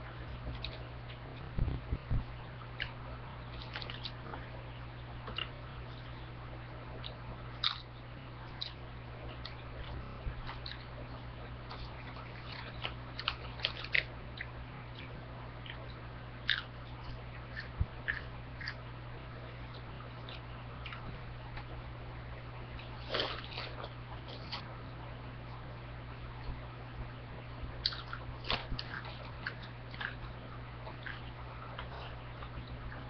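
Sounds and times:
steady low hum: 0:00.0 - 0:33.0
chips being chewed: 0:07.0 - 0:07.9, 0:11.7 - 0:18.8, 0:22.8 - 0:24.6, 0:27.8 - 0:33.0.

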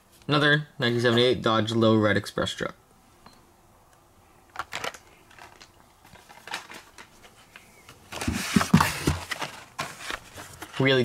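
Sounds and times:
rustling of card and plastic: 0:04.5 - 0:11.0.

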